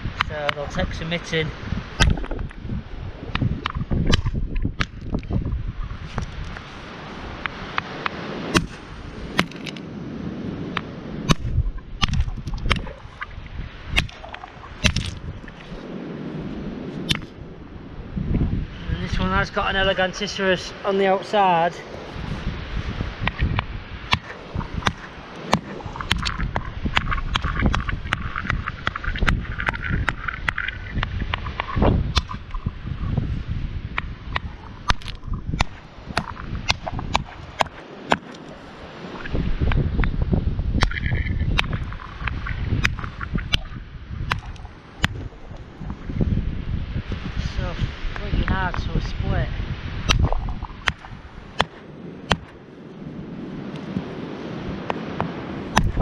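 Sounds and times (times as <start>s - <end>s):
wind rumble on microphone: 0.0s - 56.0s
hammer striking rock: 8.5s - 9.7s, 14.8s - 15.2s, 50.1s - 52.5s.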